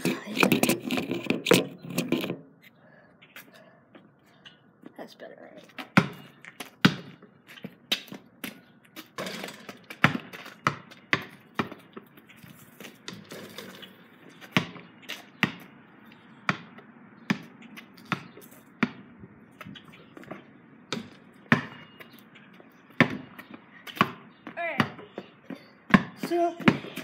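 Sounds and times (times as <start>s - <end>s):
basketball bouncing on concrete: 5.6s - 15.8s, 16.4s - 27.0s.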